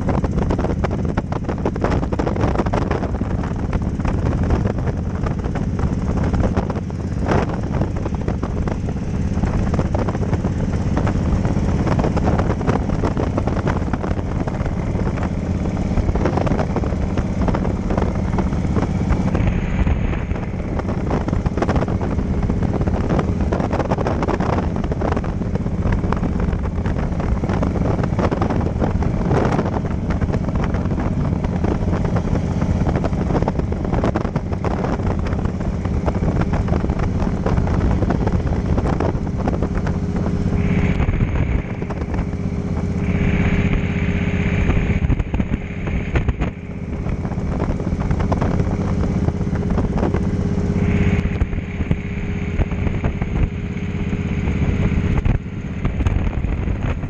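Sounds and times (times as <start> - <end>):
motorcycle engine running: 0.0 - 57.0
wind buffeting microphone: 0.0 - 57.0.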